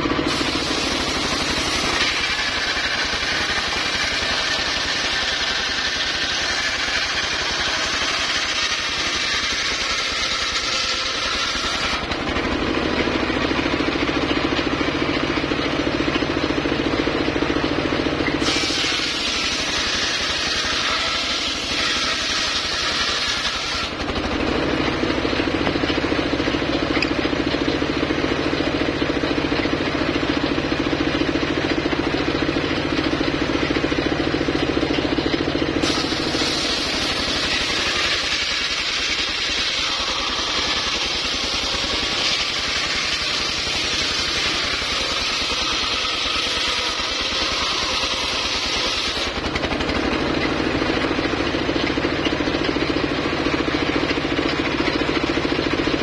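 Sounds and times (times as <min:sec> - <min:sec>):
circular saw cutting wood: 0:00.0 - 0:56.0
saw engine humming: 0:00.0 - 0:56.0.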